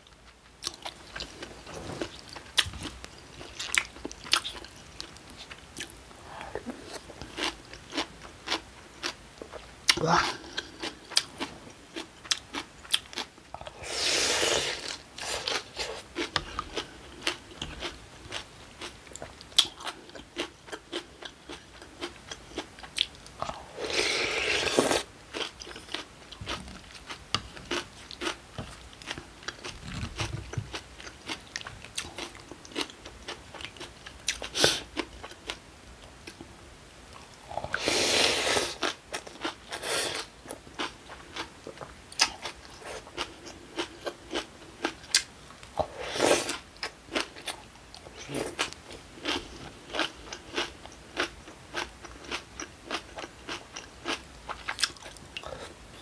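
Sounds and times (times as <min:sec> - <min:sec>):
crunching and chewing food: 0:00.0 - 0:36.5, 0:37.1 - 0:56.0
slurping broth: 0:13.7 - 0:16.0, 0:23.8 - 0:25.1, 0:37.5 - 0:38.8, 0:45.8 - 0:46.5.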